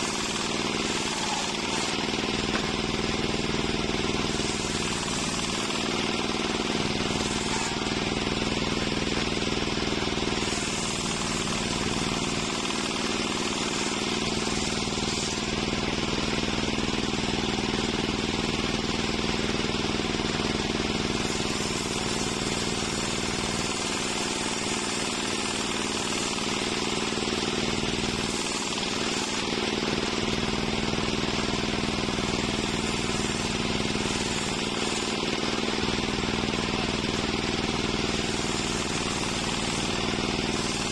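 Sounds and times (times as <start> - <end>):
circular saw blade humming: 0.0 - 40.9
saw cutting wood: 0.0 - 40.9.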